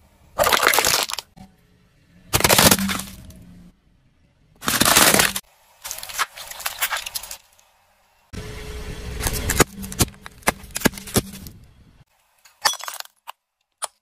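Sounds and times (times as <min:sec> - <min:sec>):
plastic cracking and crunching: 0:00.4 - 0:01.3, 0:02.4 - 0:03.2, 0:04.6 - 0:07.4
tyre crushing plastic toys: 0:00.4 - 0:01.3, 0:02.3 - 0:03.3, 0:04.6 - 0:07.4.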